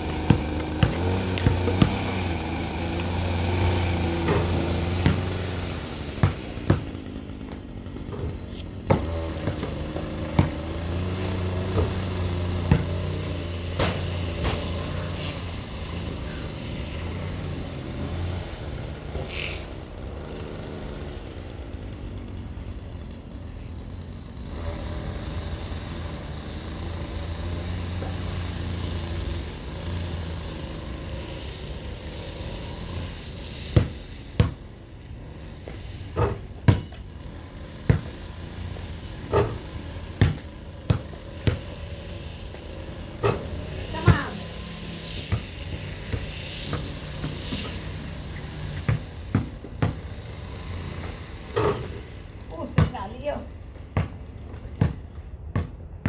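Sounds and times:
basketball bouncing on concrete: 0.0s - 14.9s, 33.7s - 34.8s, 35.6s - 52.0s, 52.6s - 56.0s
small petrol engine running: 0.0s - 56.0s.

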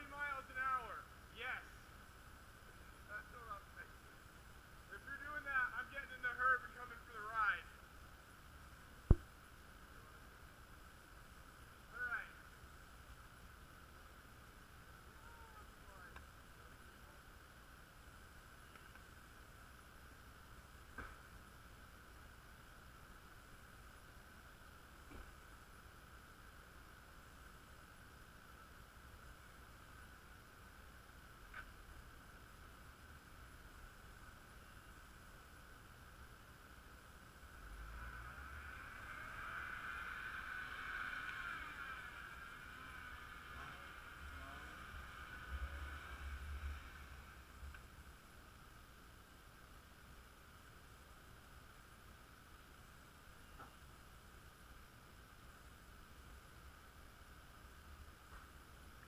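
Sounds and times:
steady hiss: 0.0s - 59.0s
distant motor whining under load: 37.7s - 48.0s.

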